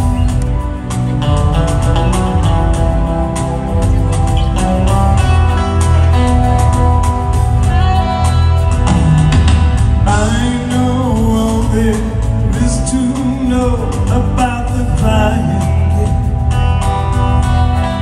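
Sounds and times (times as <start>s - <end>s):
live band playing pop ballad: 0.0s - 18.0s
male lead vocal singing: 10.0s - 16.6s.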